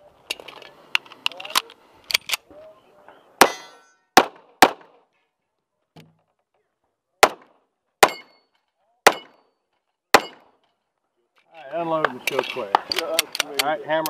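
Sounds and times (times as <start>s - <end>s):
pistol shots: 3.4s - 5.0s, 7.2s - 8.4s, 9.0s - 9.4s, 10.1s - 10.5s
metallic ring: 3.5s - 4.1s, 8.1s - 8.6s.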